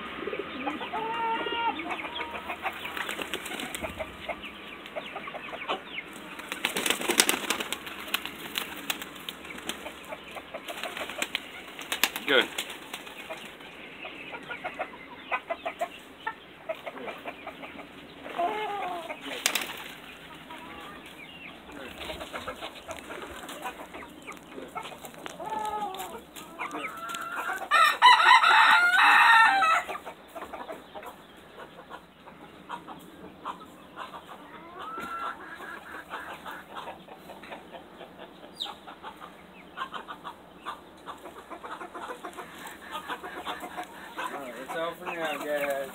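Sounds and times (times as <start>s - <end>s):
chickens clucking: 0.0s - 45.9s
rooster crowing: 26.8s - 30.0s.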